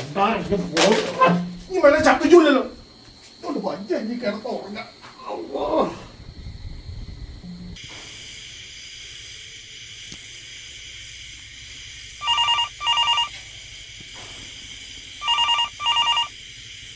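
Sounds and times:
steady hiss: 0:00.0 - 0:12.2
telephone ringing: 0:12.2 - 0:13.4, 0:15.2 - 0:16.3.

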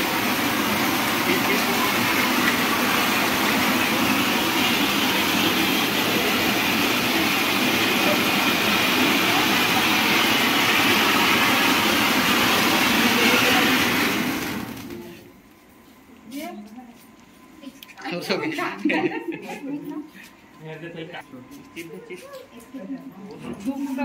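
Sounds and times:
spark fountain hissing and crackling: 0:00.0 - 0:15.2.

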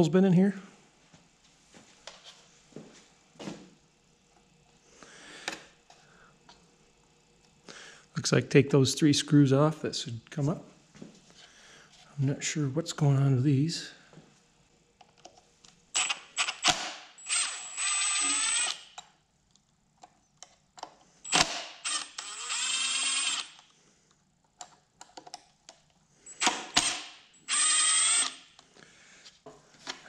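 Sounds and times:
power driver whirring: 0:16.0 - 0:19.0, 0:21.3 - 0:23.7, 0:26.3 - 0:28.6.

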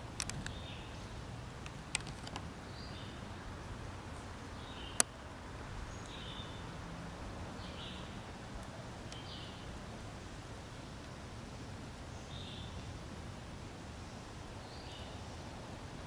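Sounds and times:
sharp clicks: 0:00.2 - 0:00.6, 0:01.6 - 0:02.5.

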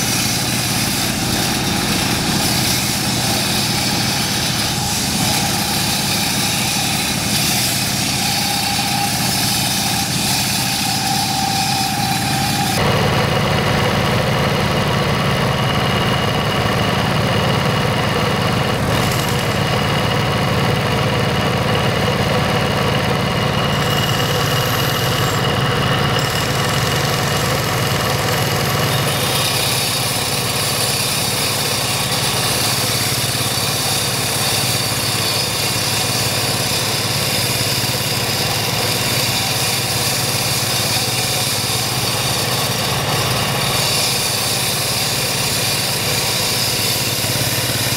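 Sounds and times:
blade grinding into road: 0:00.0 - 0:12.9, 0:23.7 - 0:47.9
diesel engine rumbling: 0:00.0 - 0:39.0.

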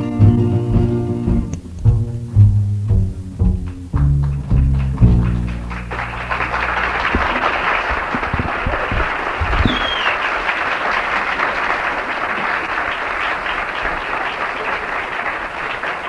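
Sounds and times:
audience applauding: 0:03.6 - 0:16.0
short falling whistle: 0:09.6 - 0:10.3.

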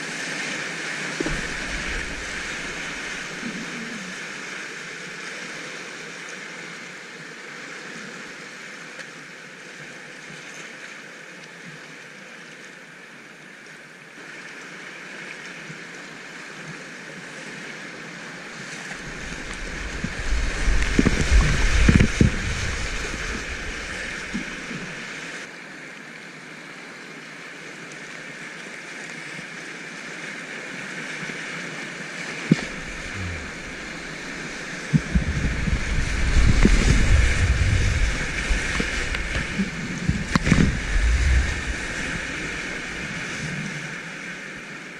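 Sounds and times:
river rapids rushing: 0:00.0 - 0:06.0, 0:18.8 - 0:25.5, 0:29.9 - 0:44.9
heavy rumbling splashes: 0:00.7 - 0:04.4, 0:18.9 - 0:25.5, 0:32.5 - 0:44.6.

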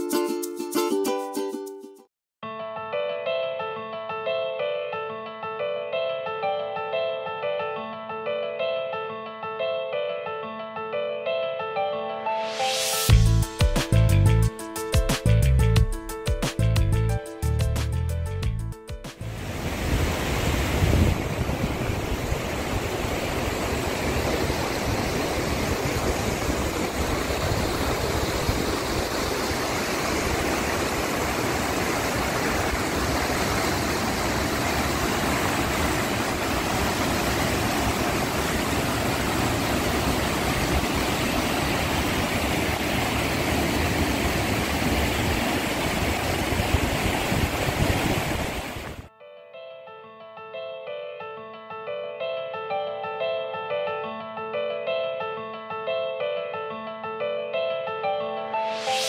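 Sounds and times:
river water rushing over rocks: 0:19.3 - 0:49.0.

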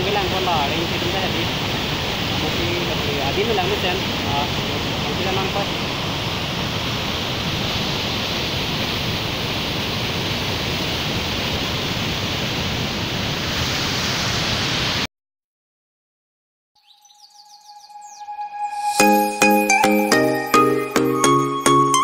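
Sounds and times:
waterfall rushing: 0:00.0 - 0:15.1.

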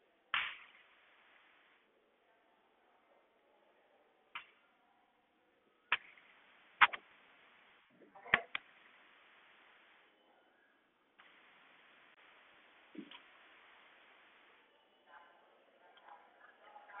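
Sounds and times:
faint hiss: 0:00.3 - 0:02.9, 0:05.7 - 0:15.2
sharp taps: 0:06.8 - 0:07.0.

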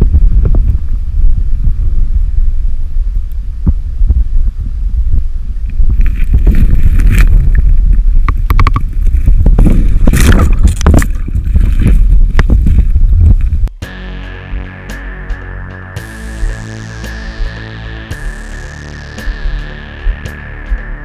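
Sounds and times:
muffled underwater river rumble: 0:00.0 - 0:13.7
water sloshing: 0:06.0 - 0:12.9.

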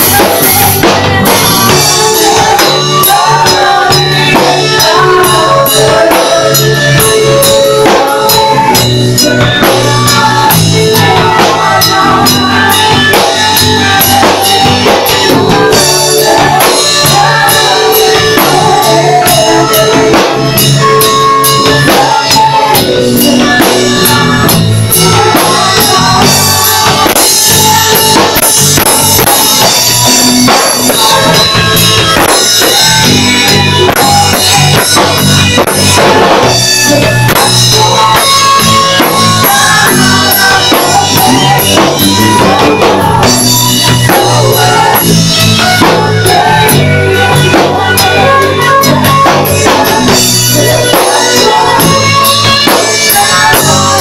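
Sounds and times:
backing singer: 0:00.0 - 0:54.0
woman singing lead vocal: 0:00.0 - 0:54.0
worship band playing: 0:00.0 - 0:54.0.

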